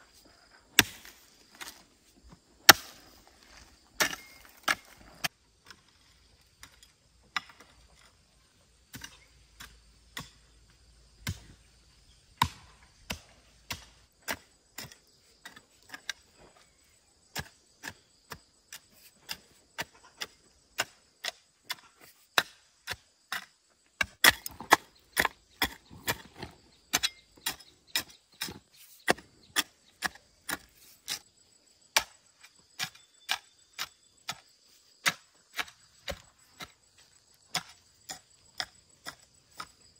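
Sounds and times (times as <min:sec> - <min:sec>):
blade chopping wood: 0:02.6 - 0:03.1, 0:12.4 - 0:14.4, 0:21.7 - 0:30.7.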